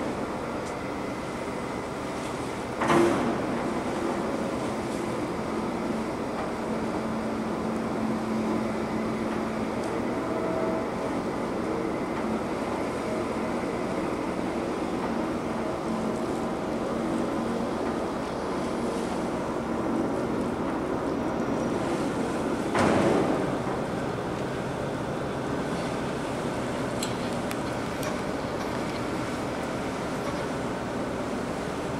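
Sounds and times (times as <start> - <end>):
background wash of noise: 0.0 - 31.9
ferry diesel engines humming: 0.0 - 31.9.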